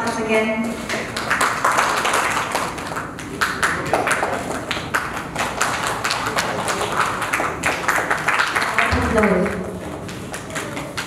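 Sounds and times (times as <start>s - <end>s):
scattered applause: 0.0s - 11.0s.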